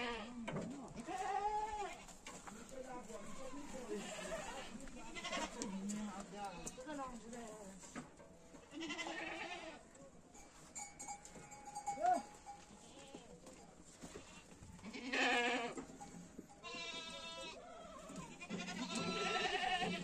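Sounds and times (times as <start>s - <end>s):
goats bleating: 0.0s - 0.4s, 1.0s - 2.1s, 3.0s - 7.0s, 8.7s - 9.8s, 14.1s - 20.0s.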